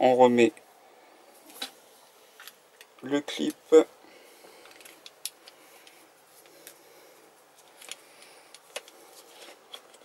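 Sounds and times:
plastic pump parts clicking: 7.6 - 10.0.

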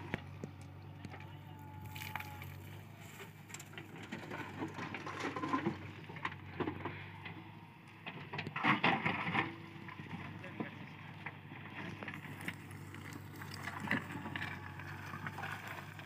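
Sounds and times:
rocks clattering and grinding: 0.0 - 7.0, 8.0 - 16.0
low engine hum: 0.0 - 16.0.

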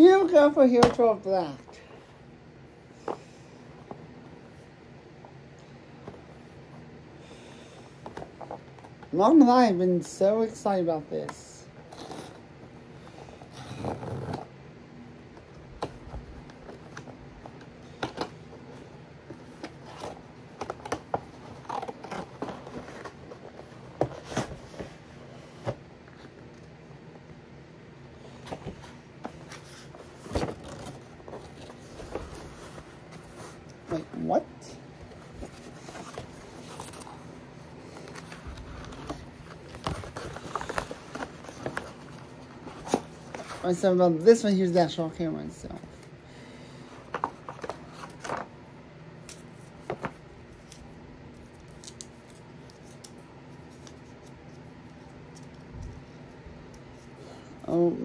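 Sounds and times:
cardboard scraping and rustling: 28.3 - 34.3, 35.0 - 43.7.

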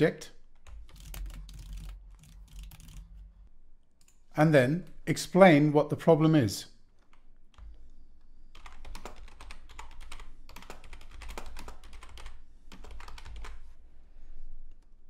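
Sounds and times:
computer keyboard typing: 0.6 - 3.3, 8.5 - 13.6.

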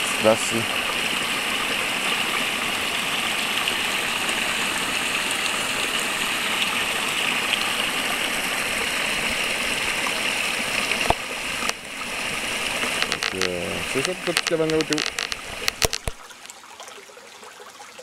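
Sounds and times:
brook rushing over rocks: 6.3 - 16.4.

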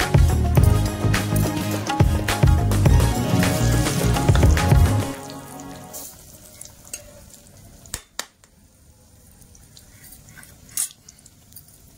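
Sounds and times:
background music: 0.0 - 6.1
food sizzling in hot oil: 0.7 - 8.0.

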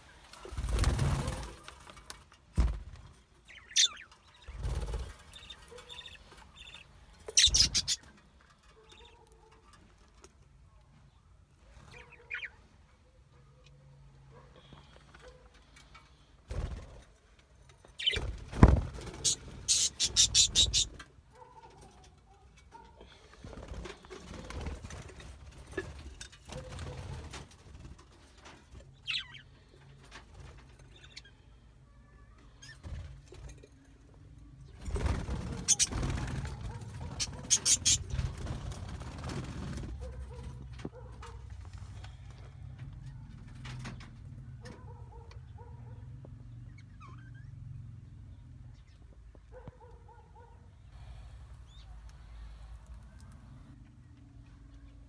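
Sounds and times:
parrot chirp: 5.4 - 8.0, 19.2 - 20.9, 37.2 - 38.2.

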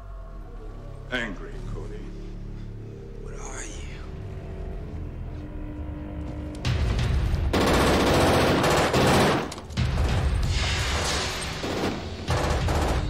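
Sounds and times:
rapid automatic gunfire: 7.5 - 10.2, 11.6 - 13.0.

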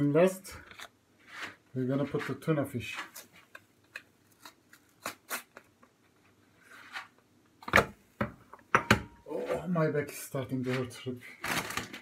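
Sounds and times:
cardboard package clicks and rustles: 11.4 - 12.0.

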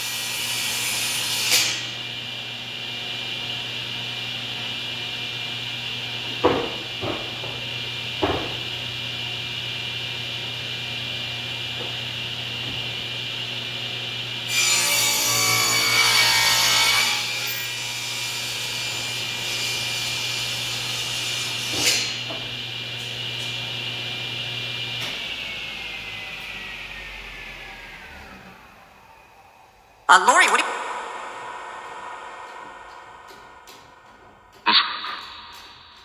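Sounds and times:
table saw whining: 24.6 - 29.6.

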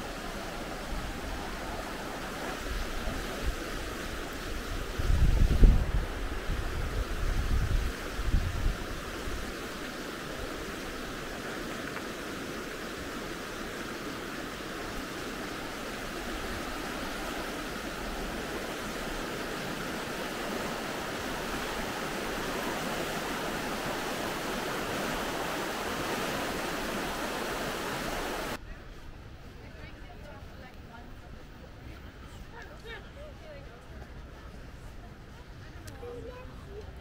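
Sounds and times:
river white water rushing: 0.0 - 28.6.

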